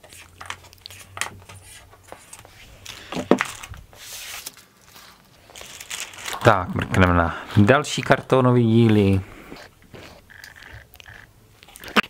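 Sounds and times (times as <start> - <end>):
plastic bag rustling: 0.0 - 7.8.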